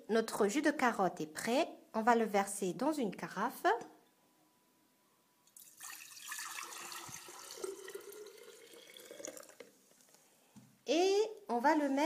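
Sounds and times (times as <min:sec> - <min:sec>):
juice pouring into a pitcher: 0:05.5 - 0:09.8.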